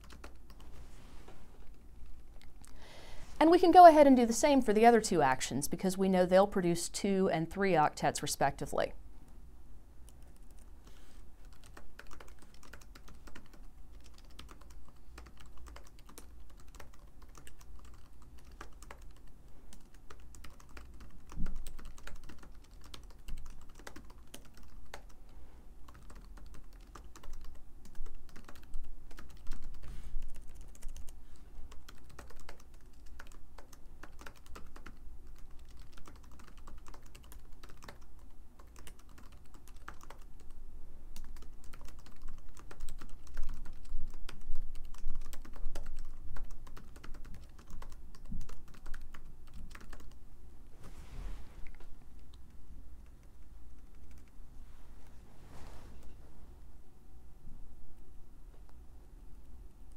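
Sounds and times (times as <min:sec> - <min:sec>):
computer keyboard typing: 0:00.0 - 0:00.7, 0:11.4 - 0:25.2, 0:25.8 - 0:40.6, 0:41.2 - 0:50.2, 0:53.0 - 0:54.4.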